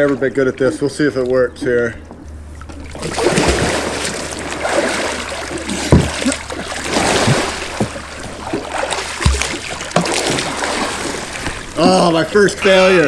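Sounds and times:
water splashing and churning: 0.0 - 13.0
dull low thumps: 2.2 - 10.5.

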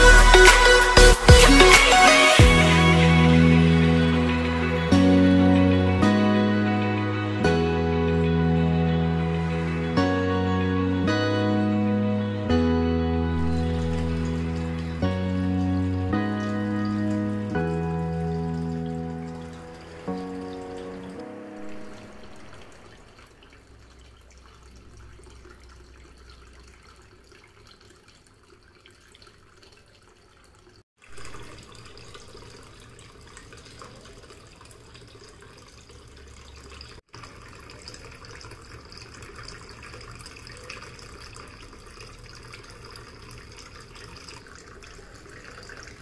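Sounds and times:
water trickling in a fountain: 13.4 - 46.0.

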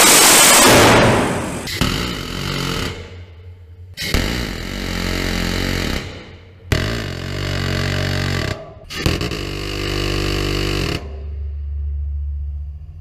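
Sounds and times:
gatling cannon firing bursts: 0.0 - 1.7.

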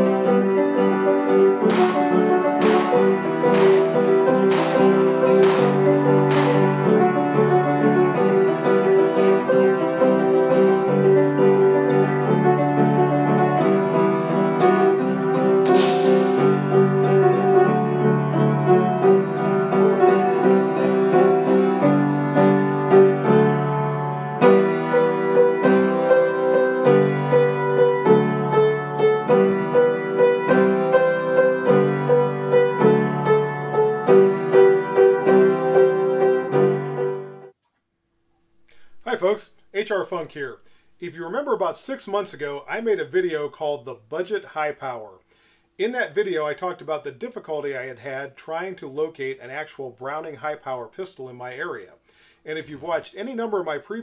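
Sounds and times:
piano music: 0.0 - 37.6.

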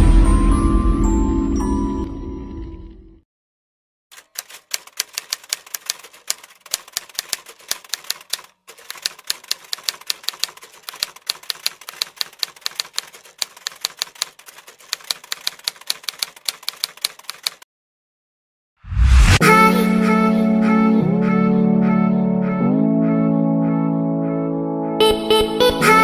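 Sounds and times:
typewriter key clicks: 4.2 - 17.6.

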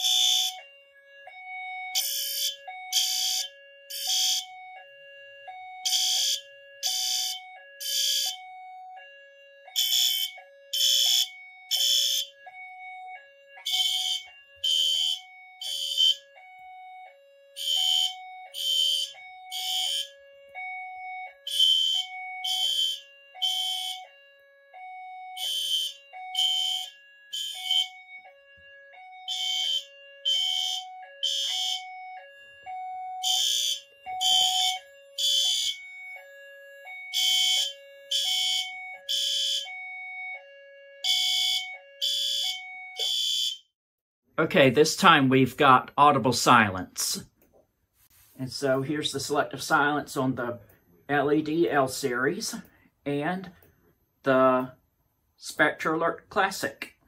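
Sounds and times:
fire alarm horn blasts: 0.0 - 43.7.

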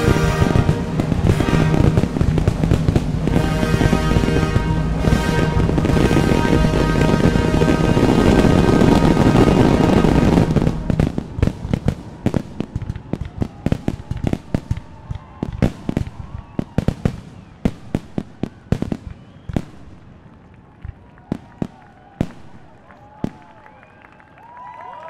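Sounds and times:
loud music: 0.0 - 11.4
fireworks bursting: 0.0 - 23.5.

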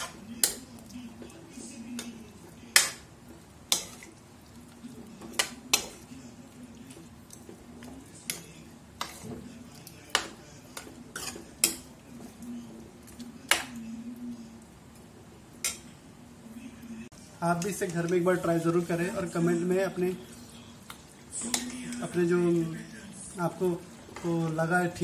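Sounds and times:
ladle stirring thick curry: 0.0 - 14.1.

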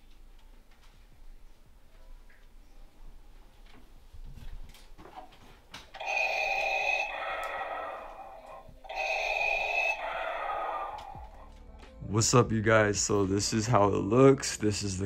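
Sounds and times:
mechanical respirator breathing: 6.0 - 11.4.

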